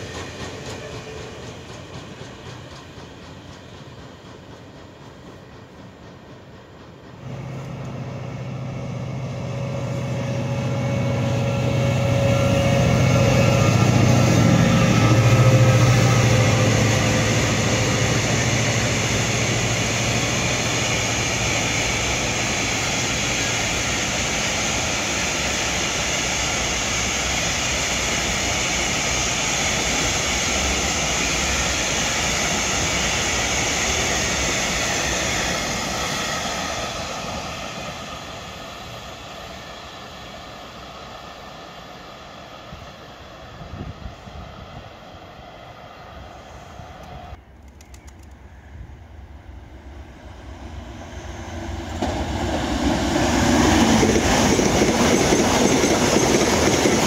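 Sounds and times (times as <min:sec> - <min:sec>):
wagons rumbling on rails: 0:00.0 - 0:39.7, 0:50.2 - 0:57.0
locomotive low drone: 0:00.0 - 0:57.0.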